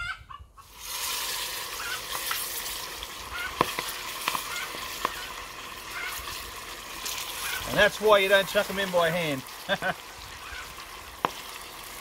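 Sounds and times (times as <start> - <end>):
oil popping and spitting: 0.7 - 7.9, 9.4 - 12.0
chicken frying in oil: 0.7 - 12.0.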